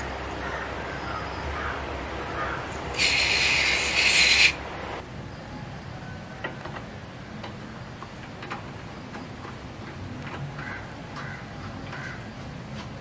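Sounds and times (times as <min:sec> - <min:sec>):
aerosol spray can hissing: 0:03.0 - 0:04.6.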